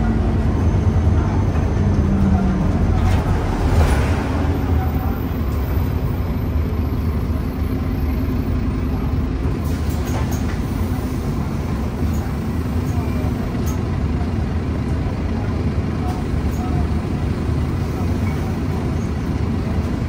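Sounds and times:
bus diesel engine drone: 0.0 - 20.0
road noise: 0.0 - 20.0.

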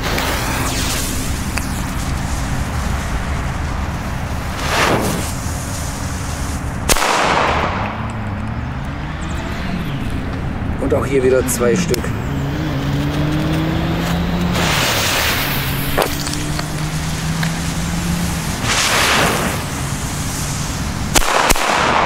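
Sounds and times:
firecracker fuses hissing: 0.0 - 7.2, 14.4 - 22.0
firecracker bang: 3.4 - 8.1, 14.5 - 16.4, 18.5 - 22.0.

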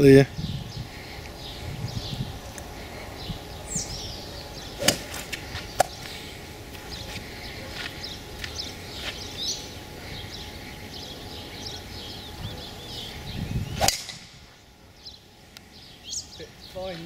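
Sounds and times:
birds chirping: 0.0 - 17.0
golf club striking ball: 4.8 - 6.0, 13.8 - 14.4.

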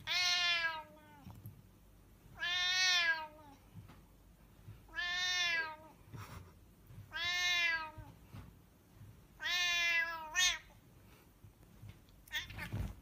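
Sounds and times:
cat meowing: 0.0 - 1.3, 2.4 - 3.6, 4.9 - 6.0, 7.1 - 8.1, 9.4 - 10.7, 12.2 - 12.8.

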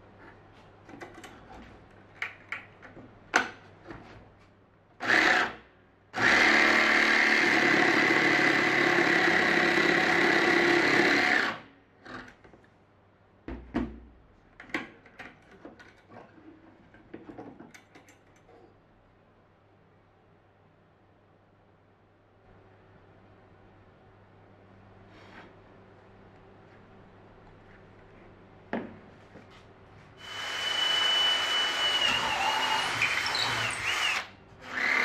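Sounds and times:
jigsaw cutting wood: 6.2 - 11.6, 30.2 - 35.0.

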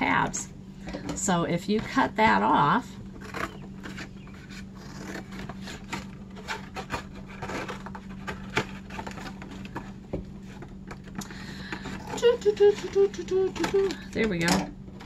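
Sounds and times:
cardboard scraping and crinkling: 1.8 - 14.0
scissors cutting cardboard: 3.2 - 11.0.

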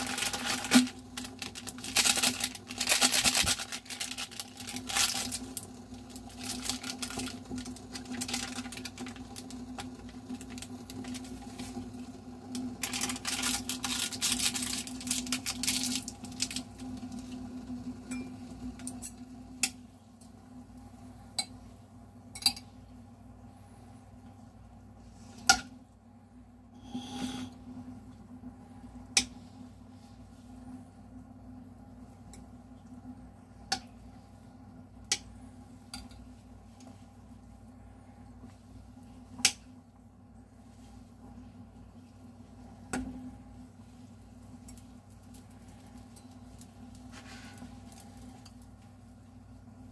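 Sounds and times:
packet rustling: 0.0 - 11.8, 12.6 - 17.0
steady low hum: 0.0 - 49.9.

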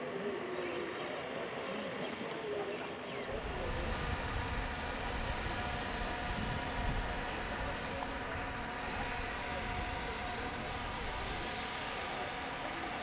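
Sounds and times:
faint distant voices: 0.0 - 13.0
wind buffeting the microphone: 3.3 - 12.7.

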